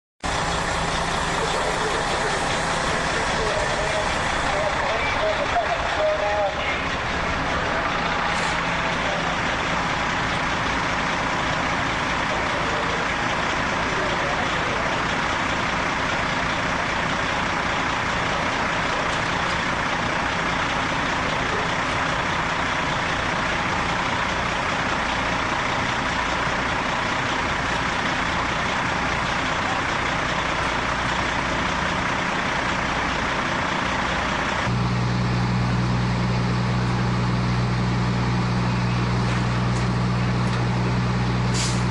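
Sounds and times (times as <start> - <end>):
deep steady hum: 0.2 - 15.0
fire truck engines droning: 0.2 - 41.9.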